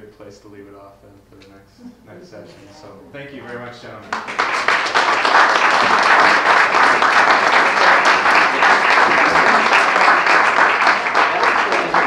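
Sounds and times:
audience applauding: 0:04.1 - 0:12.0.

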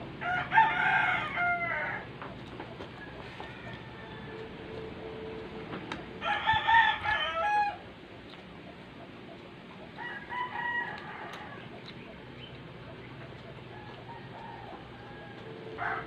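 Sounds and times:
rooster crowing: 0:00.2 - 0:02.1, 0:02.9 - 0:05.3, 0:06.1 - 0:07.9, 0:10.0 - 0:11.9, 0:13.4 - 0:16.0.

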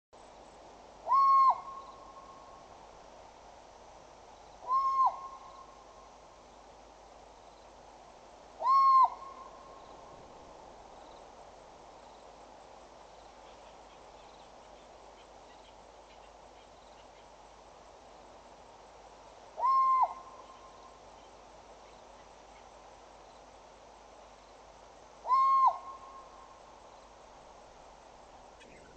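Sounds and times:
background hiss: 0:00.2 - 0:28.9
eagle whistled call: 0:04.6 - 0:05.6, 0:19.6 - 0:20.7, 0:25.2 - 0:26.3.

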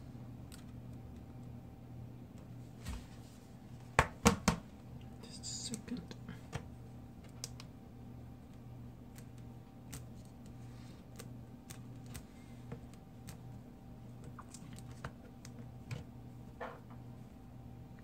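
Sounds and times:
steady low hum: 0:00.0 - 0:18.0
faint clicks and taps: 0:06.4 - 0:07.7.

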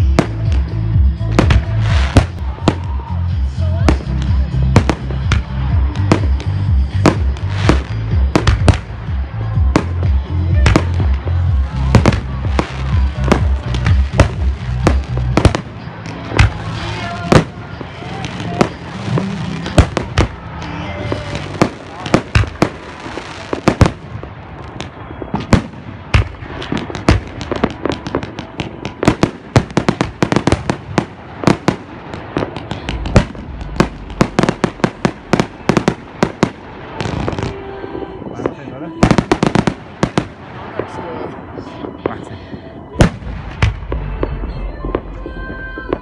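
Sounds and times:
music with heavy bass: 0:00.0 - 0:24.0, 0:32.4 - 0:36.5
fireworks bangs and crackles: 0:00.0 - 0:46.0
heavy firework boom: 0:23.6 - 0:37.5.

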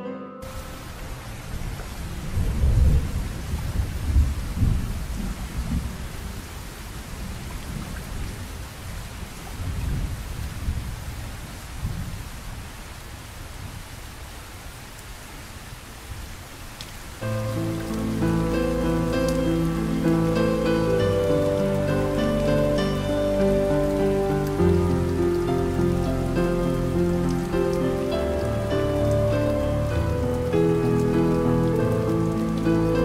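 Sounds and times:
heavy rain pouring: 0:00.4 - 0:33.0
thunder rumbling: 0:00.5 - 0:08.6, 0:17.2 - 0:33.0.

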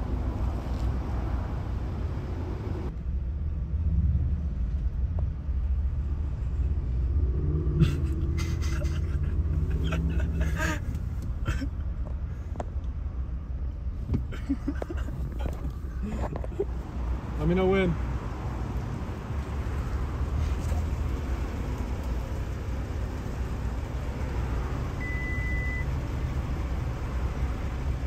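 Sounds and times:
car engine idling: 0:07.8 - 0:28.0.

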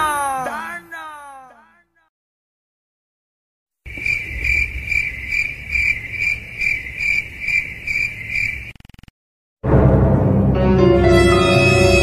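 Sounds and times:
cricket chirping: 0:03.9 - 0:09.1
eerie music: 0:09.6 - 0:12.0.

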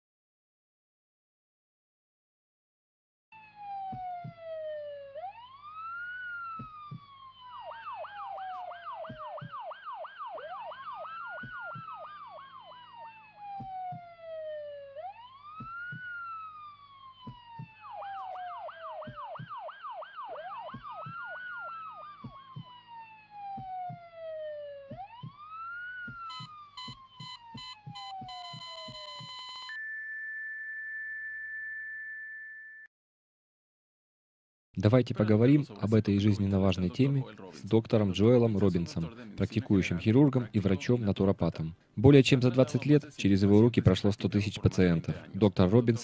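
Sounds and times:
emergency vehicle siren: 0:03.3 - 0:32.8.

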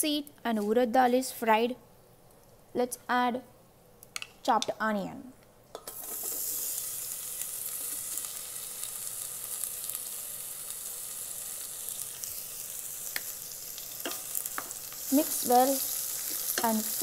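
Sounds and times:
onions sizzling in hot oil: 0:05.9 - 0:17.0.

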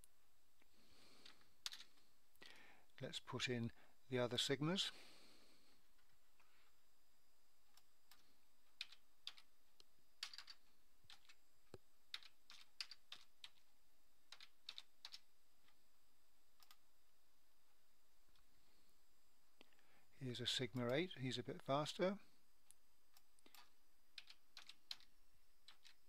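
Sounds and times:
keyboard typing: 0:01.2 - 0:02.0, 0:07.7 - 0:09.5, 0:10.2 - 0:11.4, 0:12.1 - 0:13.7, 0:14.3 - 0:15.8, 0:16.6 - 0:16.8, 0:23.1 - 0:26.0.

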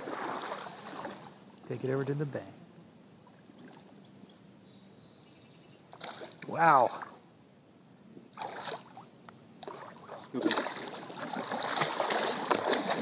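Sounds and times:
fish splashing in water: 0:08.4 - 0:09.0, 0:09.6 - 0:13.0.

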